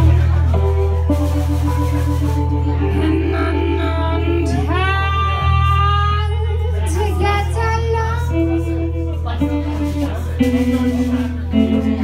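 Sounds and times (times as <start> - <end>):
drums: 0.0 - 12.0
electric guitar: 0.0 - 12.0
woman singing: 2.8 - 8.7.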